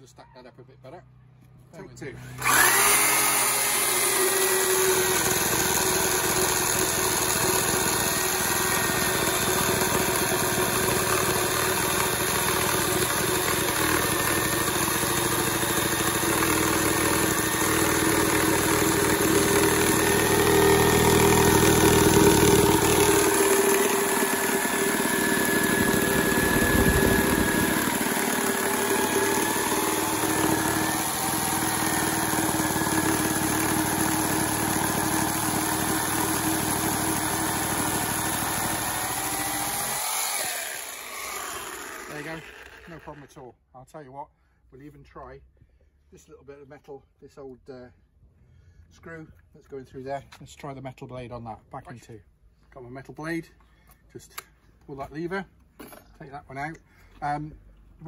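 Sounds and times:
reciprocating saw cutting timber: 2.1 - 43.4.

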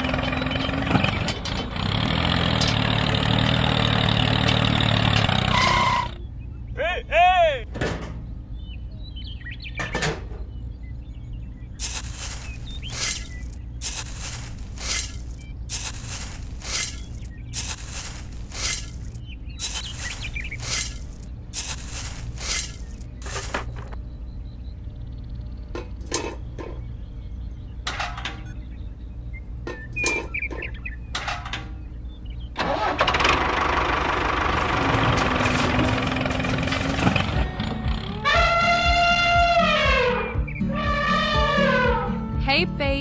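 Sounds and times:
small shovel scraping sand: 11.8 - 24.0.

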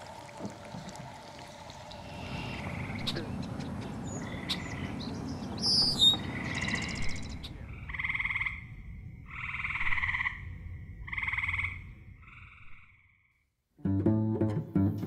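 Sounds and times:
bird chirps: 1.8 - 7.6.

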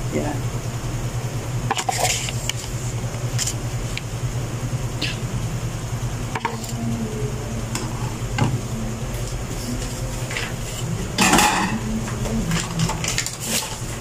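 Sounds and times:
steady low hum: 0.0 - 14.0
utensils clinking against pan: 11.2 - 11.8.

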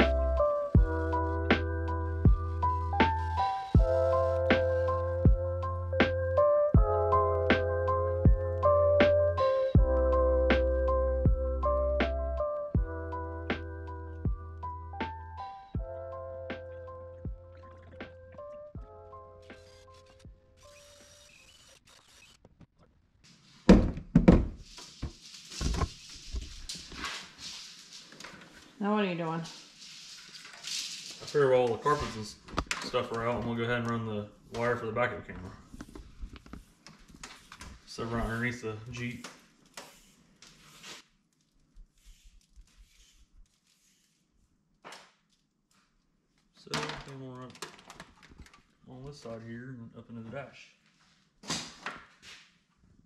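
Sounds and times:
wire rustling: 24.6 - 34.0.

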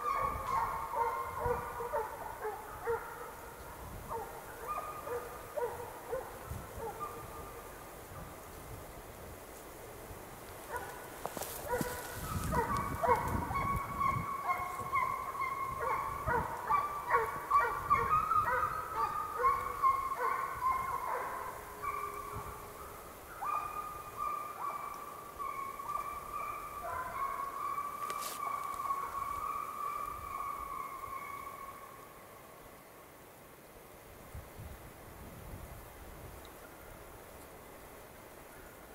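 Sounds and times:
hounds baying: 0.0 - 3.5, 4.1 - 7.6, 10.7 - 31.8.

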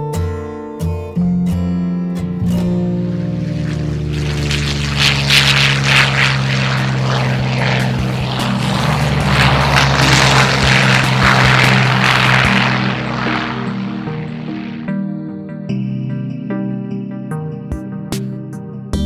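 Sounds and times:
propeller aircraft engine drone: 2.1 - 17.0
rough rushing noise: 2.9 - 14.9.

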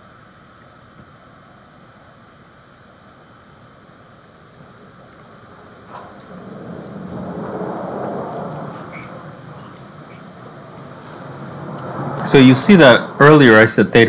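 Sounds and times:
room background hiss: 0.0 - 14.0
rushing noise: 3.6 - 14.0.

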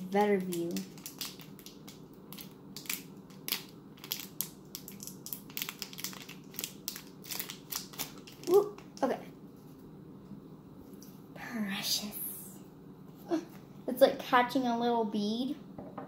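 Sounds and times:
plastic wrapper crinkling: 0.0 - 9.1.

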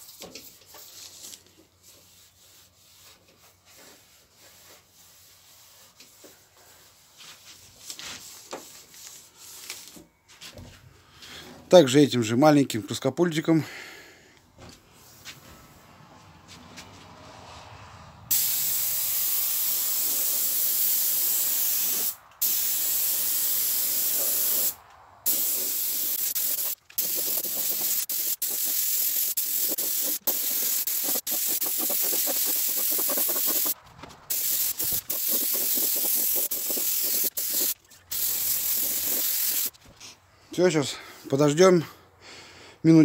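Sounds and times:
spray gun hissing: 18.3 - 39.7.

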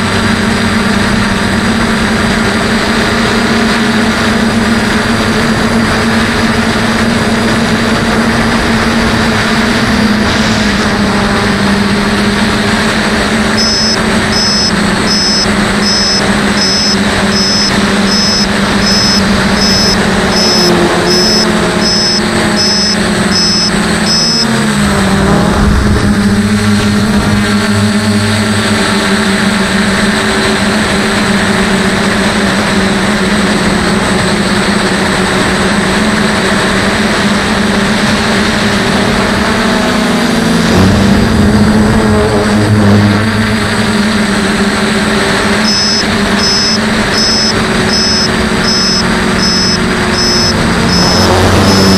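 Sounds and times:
drone motors droning: 0.0 - 51.9
short high double beeps: 13.5 - 24.6, 45.6 - 51.9.

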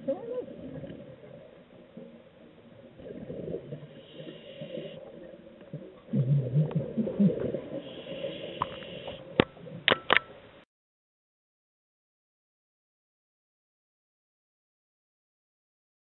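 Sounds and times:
underwater gurgling rumble: 0.0 - 9.9
faint hissing: 3.3 - 5.4, 6.9 - 9.4.

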